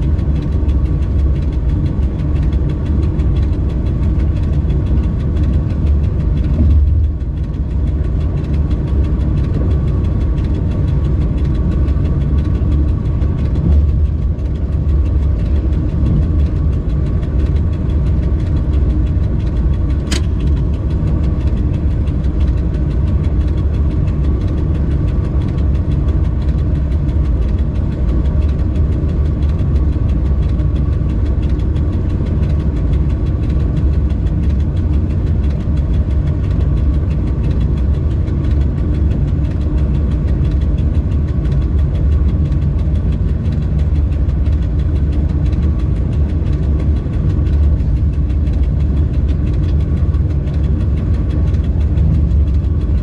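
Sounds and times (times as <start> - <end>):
locomotive low rumble: 0.0 - 53.0
sharp click: 19.4 - 21.8.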